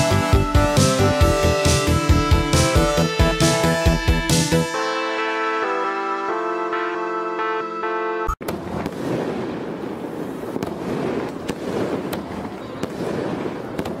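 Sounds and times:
synth background music: 0.0s - 8.4s
fireworks crackling: 8.4s - 14.0s
fireworks popping: 8.4s - 14.0s.

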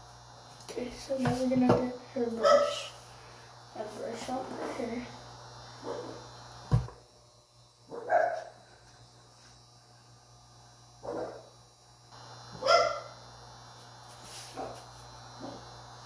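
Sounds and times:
dog barking: 2.4s - 2.8s, 5.8s - 6.2s, 7.9s - 8.6s, 11.0s - 11.5s, 12.6s - 13.2s, 14.6s - 14.8s.

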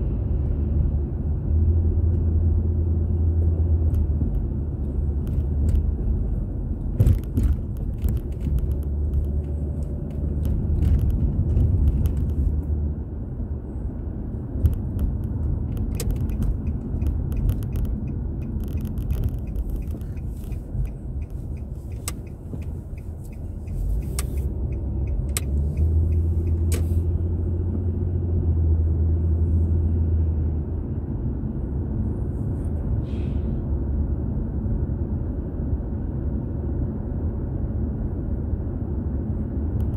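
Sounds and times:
car engine and road rumble: 0.0s - 39.9s
sharp clicks and knocks: 6.8s - 12.5s, 14.6s - 26.9s.

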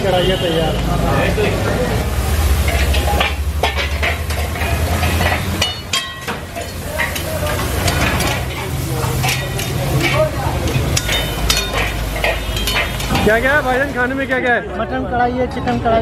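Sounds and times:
food sizzling in woks: 0.0s - 14.7s
metal tongs clicking and scraping: 2.6s - 14.0s.

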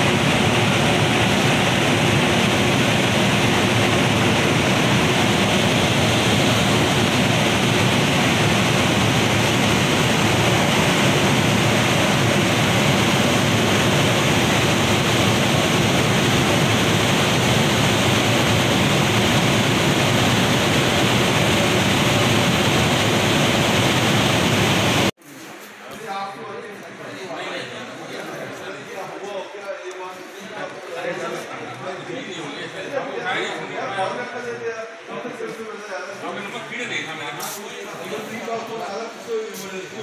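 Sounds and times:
loud steady rushing noise: 0.0s - 25.2s.

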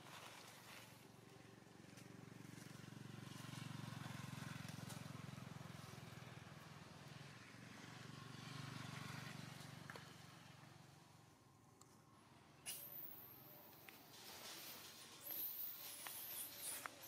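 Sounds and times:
faint vehicle engine hum: 0.0s - 17.0s.

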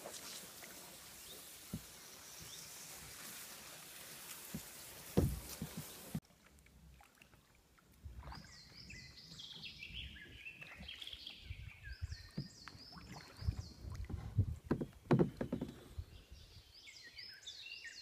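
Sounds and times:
reeds rustling: 0.0s - 6.2s
paddle strokes splashing water: 0.0s - 16.0s
songbird chirping: 8.2s - 18.0s.

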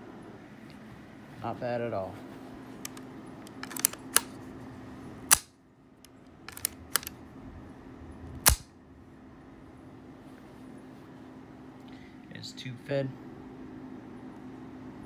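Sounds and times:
light rifle clicks: 2.8s - 4.3s, 5.3s - 7.1s, 8.4s - 8.7s
rifle action metallic clack: 3.6s - 4.3s, 6.5s - 7.1s, 8.4s - 8.7s.

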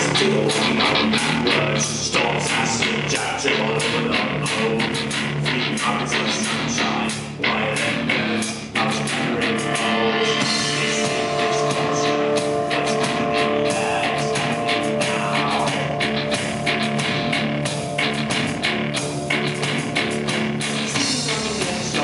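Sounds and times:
drum kit: 0.0s - 22.0s
electric guitar: 0.0s - 22.0s
sustained keyboard notes: 9.1s - 22.0s.

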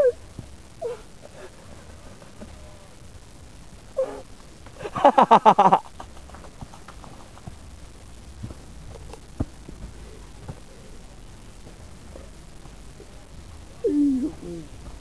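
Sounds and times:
faint rustling: 0.0s - 15.0s
person laughing: 4.8s - 6.3s.

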